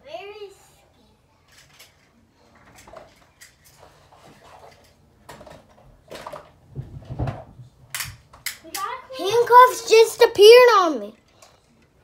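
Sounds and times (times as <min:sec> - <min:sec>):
light clicks and rustles: 0:01.4 - 0:08.9.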